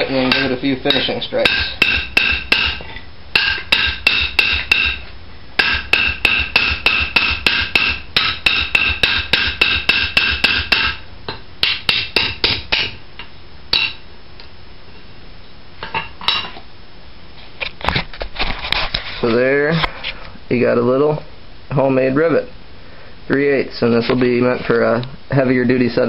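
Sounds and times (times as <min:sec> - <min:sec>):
hammer striking metal rivet: 0:00.3 - 0:02.8, 0:03.4 - 0:05.0, 0:05.6 - 0:13.0, 0:13.7 - 0:14.0.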